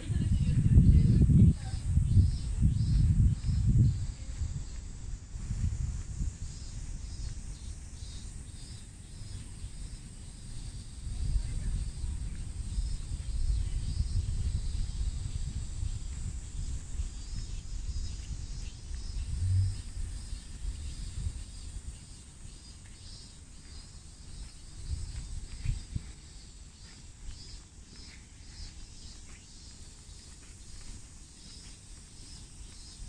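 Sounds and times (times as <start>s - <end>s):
brief low hum: 19.2s - 20.0s.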